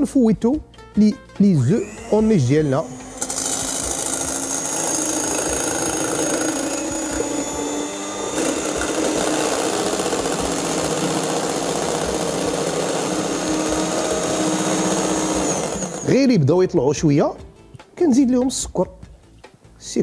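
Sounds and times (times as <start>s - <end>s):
electric stand mixer whirring: 1.6s - 16.4s.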